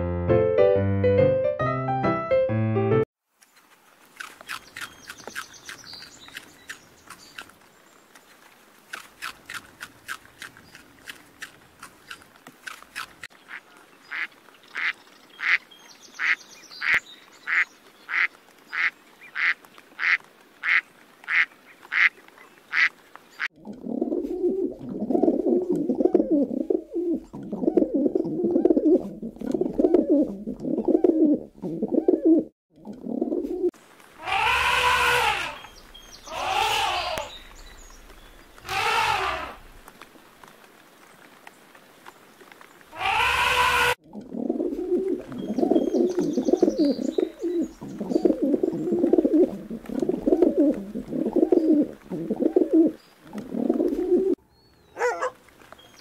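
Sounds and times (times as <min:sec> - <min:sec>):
pigeons cooing: 0:23.6 - 0:39.9, 0:42.9 - 0:54.4.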